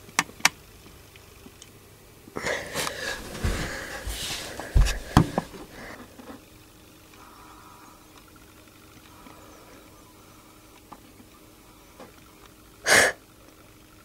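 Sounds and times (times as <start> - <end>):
dull bumps and clicks: 3.2 - 5.7.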